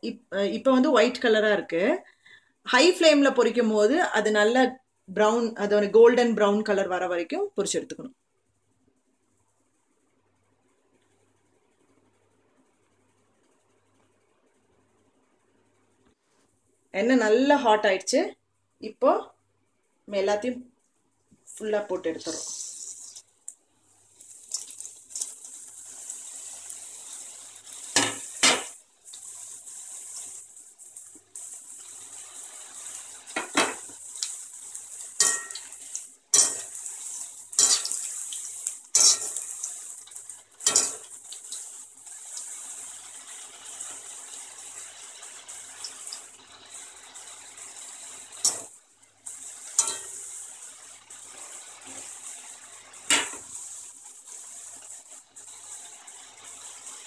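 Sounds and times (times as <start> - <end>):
fries sizzling in hot oil: 21.5 - 57.0
metal skimmer scraping pan: 35.2 - 38.3, 38.9 - 39.8, 40.6 - 41.7, 49.5 - 50.4.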